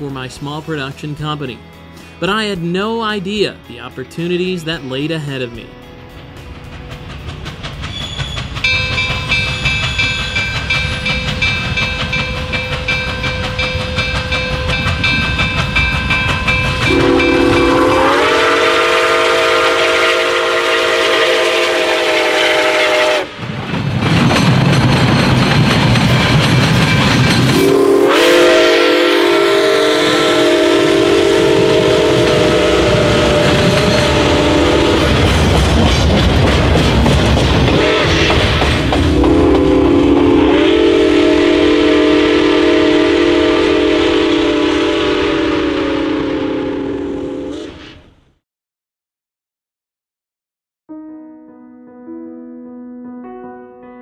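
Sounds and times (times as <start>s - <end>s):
passing train rumble and clatter: 0.0s - 48.2s
steam locomotive chime whistle: 7.8s - 23.4s, 26.8s - 35.3s, 37.8s - 47.9s.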